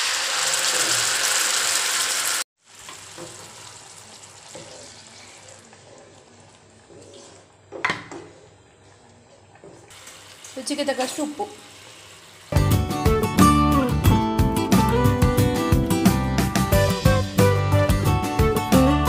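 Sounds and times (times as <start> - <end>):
paste sizzling in hot oil: 0.0 - 7.2
wooden spatula scraping: 4.5 - 7.6.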